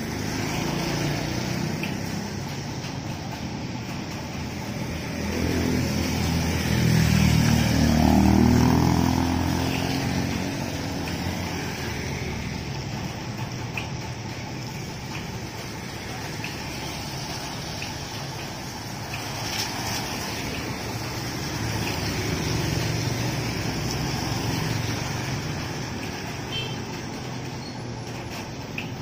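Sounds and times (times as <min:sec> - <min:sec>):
steady hiss of wet road: 0:00.0 - 0:29.0
vehicle engine passing by: 0:04.4 - 0:13.2, 0:15.8 - 0:26.2.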